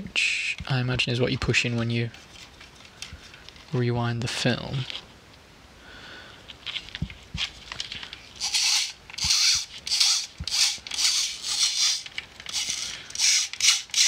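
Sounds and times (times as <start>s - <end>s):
short scraping strokes: 8.4s - 14.0s.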